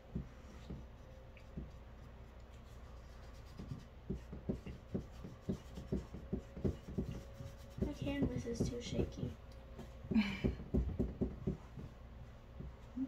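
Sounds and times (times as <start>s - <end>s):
paintbrush tapping on canvas: 3.5s - 12.0s.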